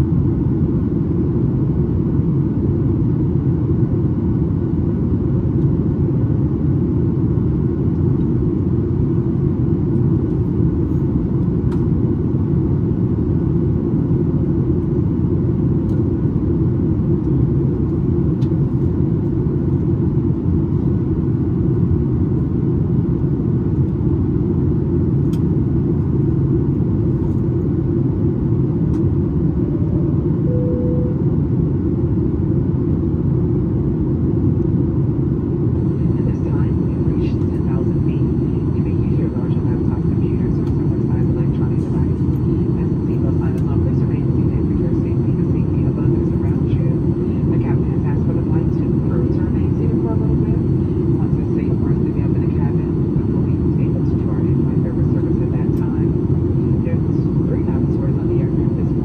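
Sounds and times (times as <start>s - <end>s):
airplane cabin rumble: 0.0s - 59.0s
faint tone: 30.4s - 31.4s.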